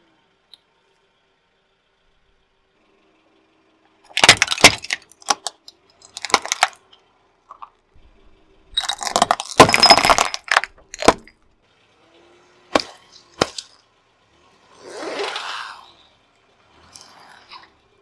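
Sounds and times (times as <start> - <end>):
candies crunching under car tyre: 4.1 - 6.8, 8.8 - 11.3
glass cracking: 4.1 - 6.8, 8.8 - 11.4
sharp crack: 4.1 - 6.8, 12.7 - 13.8
metal clinking: 8.8 - 11.4.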